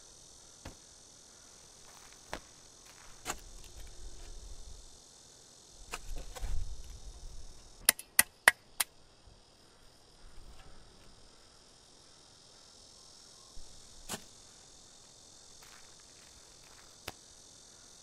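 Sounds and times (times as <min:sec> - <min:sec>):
crickets chirring: 0:00.0 - 0:18.0
shovel digging into dirt: 0:03.1 - 0:03.9, 0:14.1 - 0:14.3.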